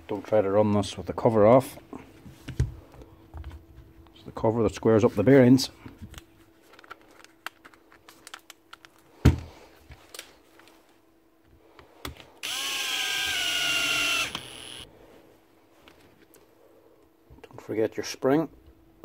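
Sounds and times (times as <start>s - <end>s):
drill motor spinning: 12.4s - 14.9s.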